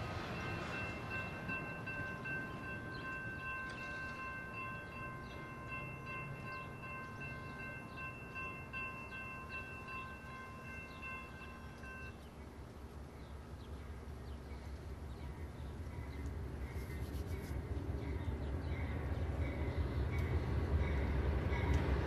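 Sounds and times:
railroad crossing bell ringing: 0.0 - 12.4, 18.8 - 22.0
diesel locomotive rumbling: 0.0 - 22.0.

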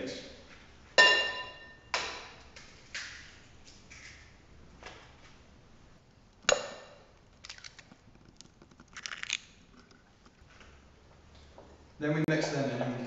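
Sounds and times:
eggshell crackling: 6.0 - 10.5.

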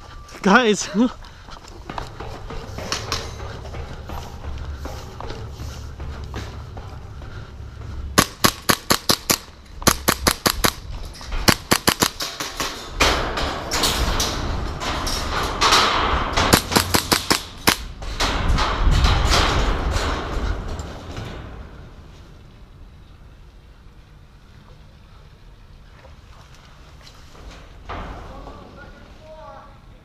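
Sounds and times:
rushing movement noise: 0.0 - 22.8
airsoft guns firing: 8.2 - 10.8, 11.5 - 12.8, 16.4 - 17.9.

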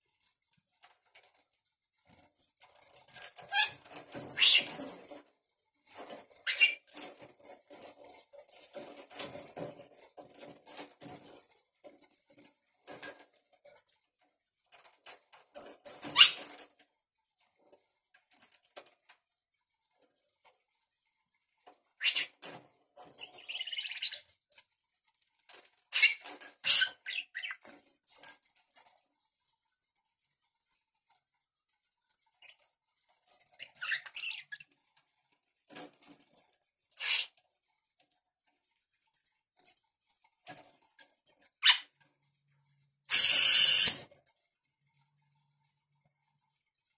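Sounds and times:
little bell jingling: 0.0 - 14.1, 14.7 - 16.8, 22.1 - 24.7, 25.5 - 34.8, 35.7 - 37.3, 39.0 - 42.0.

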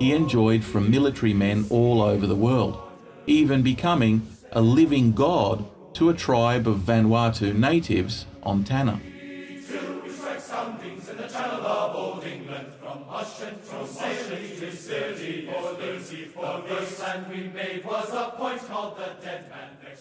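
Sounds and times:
group of voices chanting: 1.6 - 5.9, 8.9 - 20.0.

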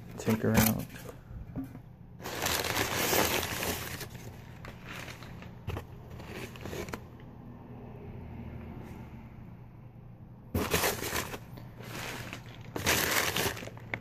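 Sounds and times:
newspaper crinkling rustle: 2.2 - 7.0, 10.6 - 14.0.

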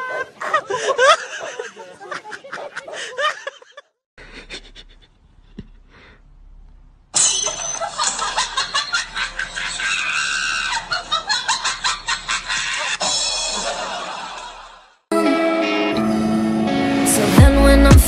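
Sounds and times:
men laughing and calling out: 0.0 - 3.8, 7.9 - 13.0
loud music: 15.1 - 18.0.

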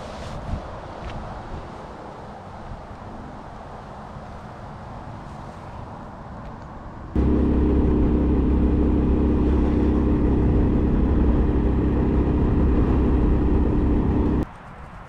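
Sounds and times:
engine droning steadily: 7.2 - 14.4.

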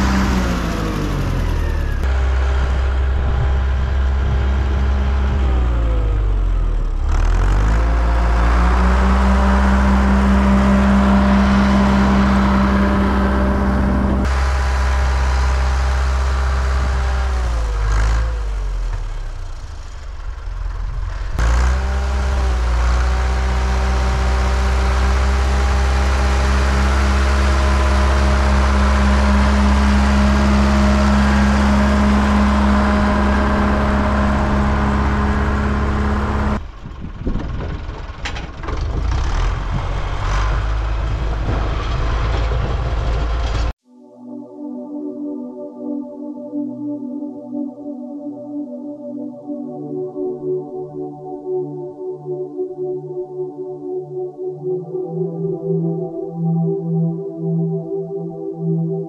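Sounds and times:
tractor engine running under load: 0.0 - 43.7.

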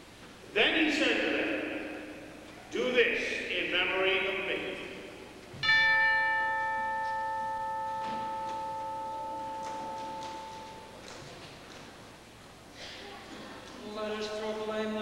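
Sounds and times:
bell ringing: 5.6 - 11.1.

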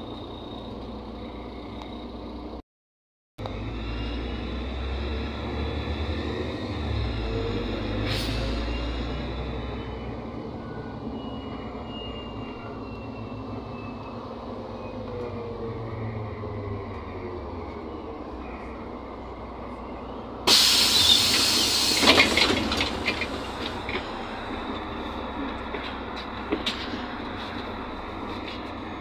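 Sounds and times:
bus engine rumble: 0.0 - 2.6, 3.4 - 29.0
loud air hiss: 20.5 - 22.6.

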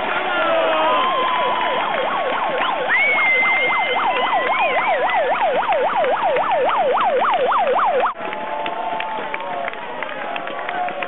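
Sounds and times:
crowd noise: 0.0 - 11.0
clapping: 0.9 - 6.8, 7.8 - 11.0
electronic yelping siren: 0.9 - 8.2.

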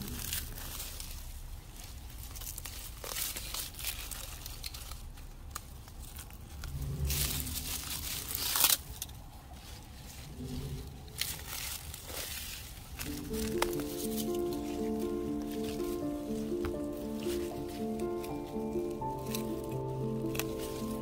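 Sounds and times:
weeds torn up by hand: 11.2 - 21.0.

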